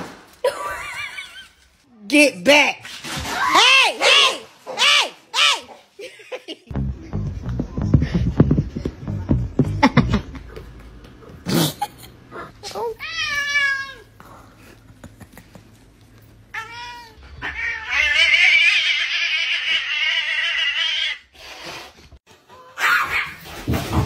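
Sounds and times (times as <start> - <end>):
cat yowling: 16.6 - 21.2.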